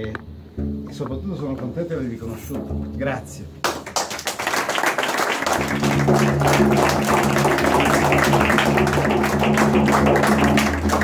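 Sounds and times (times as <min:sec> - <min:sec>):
background music with low notes: 0:00.0 - 0:01.7
people applauding: 0:03.6 - 0:11.0.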